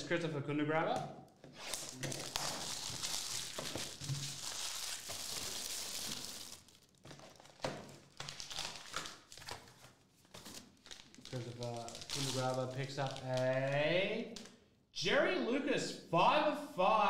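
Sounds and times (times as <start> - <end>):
cellophane crinkling: 1.6 - 13.8.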